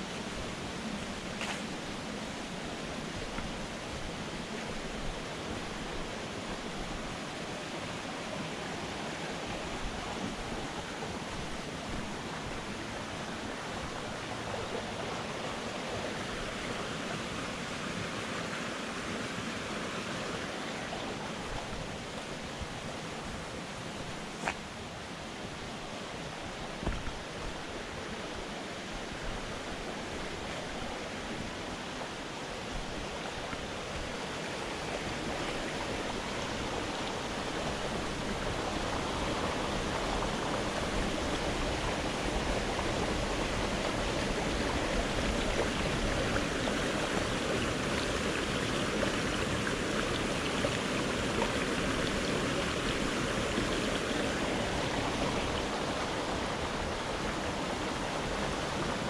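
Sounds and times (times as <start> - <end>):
stream rushing over boulders: 0.0 - 59.0.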